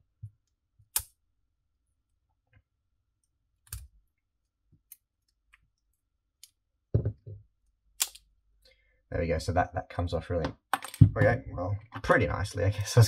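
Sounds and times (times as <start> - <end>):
plastic parts clicking and tapping: 10.4 - 11.2.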